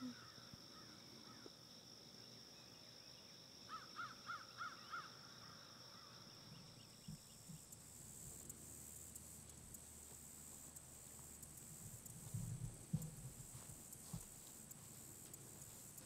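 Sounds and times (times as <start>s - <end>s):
crow cawing: 3.7s - 6.2s.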